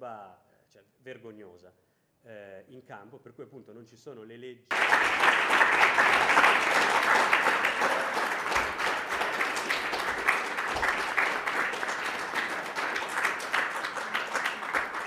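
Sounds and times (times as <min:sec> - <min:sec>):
audience applauding: 0:04.7 - 0:15.0.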